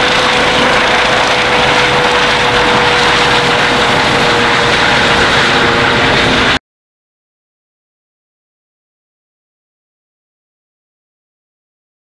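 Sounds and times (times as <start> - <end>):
helicopter rotor and turbine: 0.0 - 6.6.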